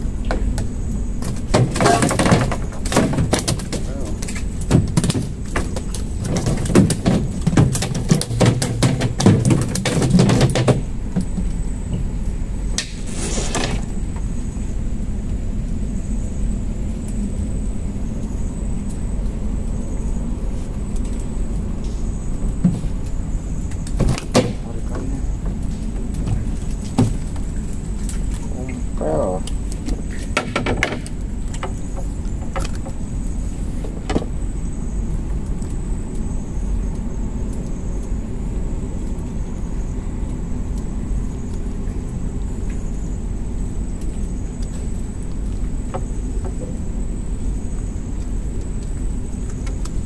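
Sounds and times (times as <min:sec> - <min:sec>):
low engine rumble: 0:00.0 - 0:50.0
gear clattering on boat deck: 0:01.3 - 0:11.4.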